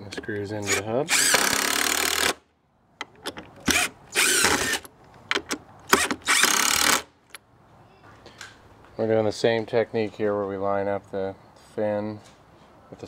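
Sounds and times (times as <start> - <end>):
cordless driver driving screws: 0.2 - 2.4, 3.1 - 7.4.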